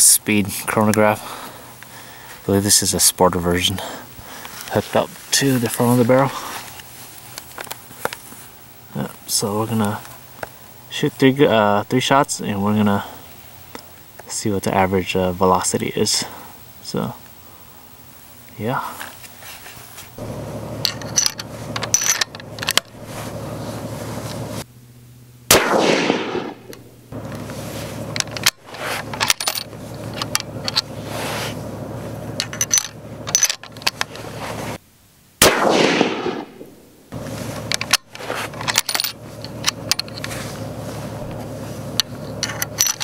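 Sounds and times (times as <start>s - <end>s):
rifle shots with echo: 25.5s - 26.8s, 35.4s - 36.8s.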